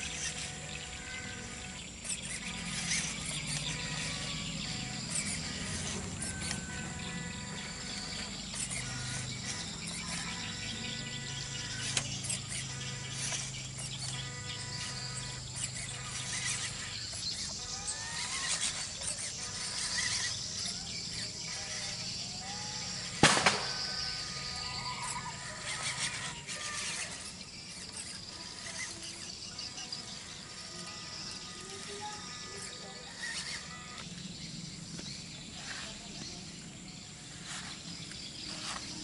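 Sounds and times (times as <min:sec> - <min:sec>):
small electric motor whining: 0:00.0 - 0:39.0
sharp click: 0:23.2 - 0:24.1.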